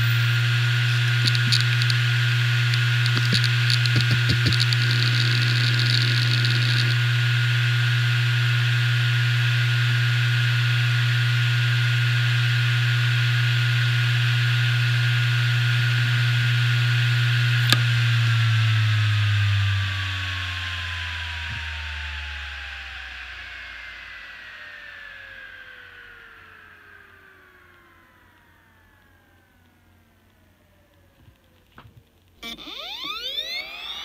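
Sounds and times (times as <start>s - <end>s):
hard drive hum and whine: 0.0s - 34.0s
hard drive heads ticking: 1.1s - 7.0s.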